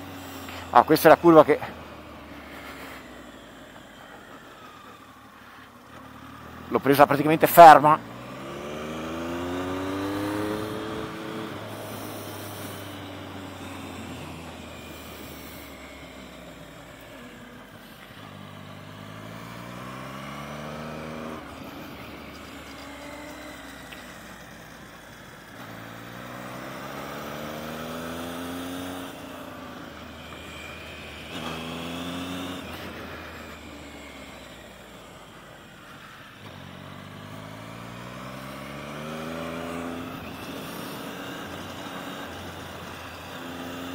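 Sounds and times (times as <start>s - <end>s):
motorcycle engine revving: 0.0s - 43.9s.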